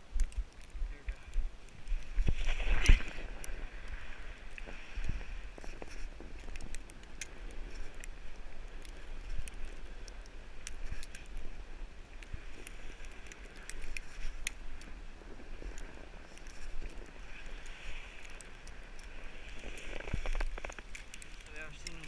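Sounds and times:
clicks and crackles: 0:00.0 - 0:22.0.

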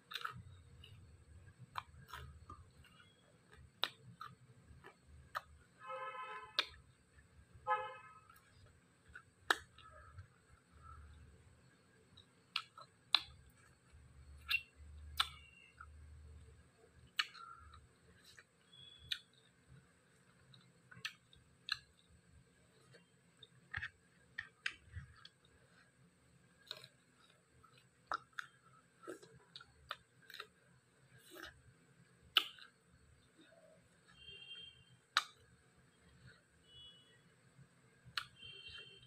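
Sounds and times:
chewing and lip smacks: 0:00.0 - 0:05.7, 0:12.1 - 0:15.9, 0:17.0 - 0:19.5, 0:20.2 - 0:25.9, 0:26.6 - 0:30.6, 0:32.3 - 0:33.3.

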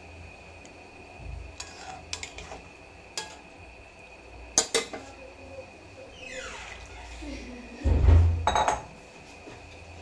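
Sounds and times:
faint high hum: 0:00.0 - 0:10.0
metal spatula scraping a pan: 0:01.5 - 0:03.5.

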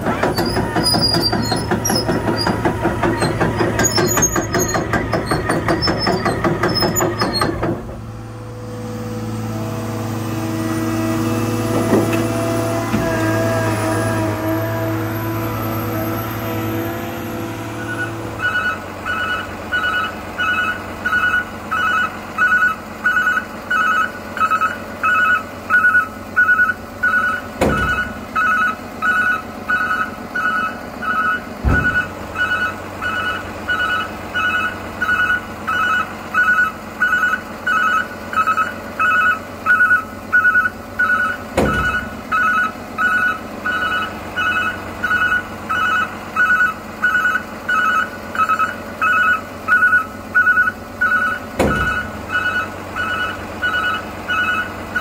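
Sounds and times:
electronic warning beeps: 0:17.8 - 0:55.0.

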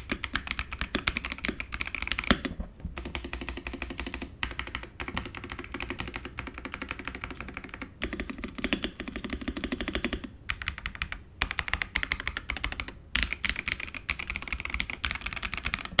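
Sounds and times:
mechanical keyboard typing: 0:00.0 - 0:16.0.

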